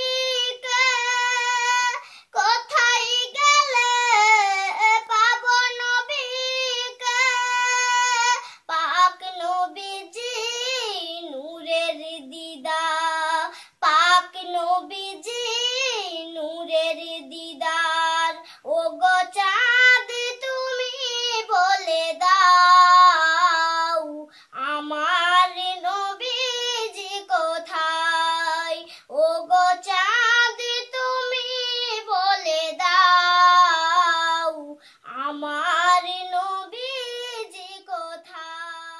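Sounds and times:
girl singing unaccompanied: 0.0s - 38.9s
girl breathing: 2.0s - 2.4s, 8.4s - 8.7s, 13.5s - 13.8s, 18.4s - 18.7s, 24.2s - 24.6s, 28.8s - 29.1s, 34.7s - 35.1s.

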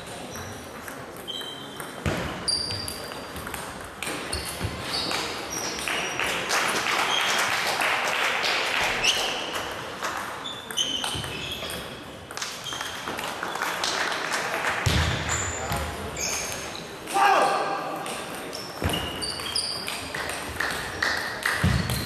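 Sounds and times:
table tennis balls clicking: 0.2s - 6.0s.

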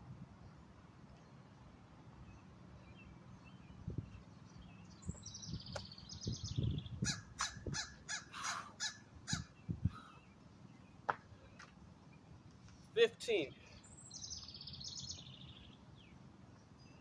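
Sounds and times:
harsh bird calls: 4.6s - 11.6s.

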